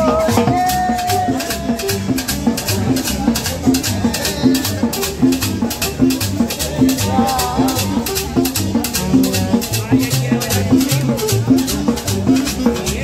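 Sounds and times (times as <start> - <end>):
live band playing dance music: 0.0 - 13.0
rattling percussion rhythm: 0.0 - 13.0.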